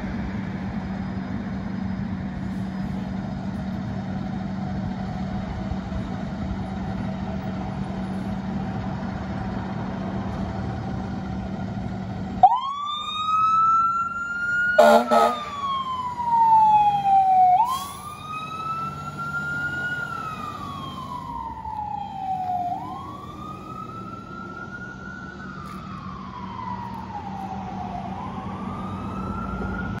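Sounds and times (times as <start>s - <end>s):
fire engine siren wailing: 4.1s - 30.0s.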